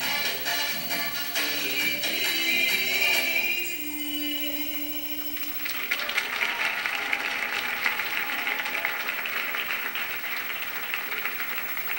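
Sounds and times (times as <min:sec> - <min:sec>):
audience applauding: 0:05.6 - 0:11.9.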